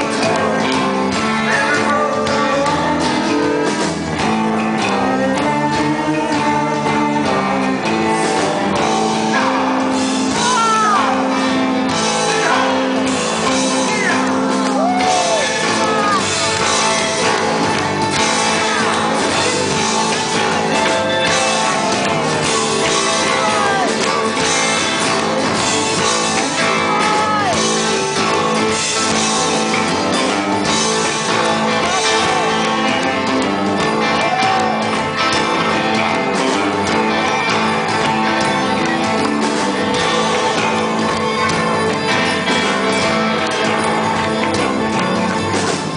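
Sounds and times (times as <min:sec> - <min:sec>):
man singing: 0:00.0 - 0:17.4, 0:18.3 - 0:25.4, 0:26.0 - 0:37.4
rock band playing: 0:00.0 - 0:45.9.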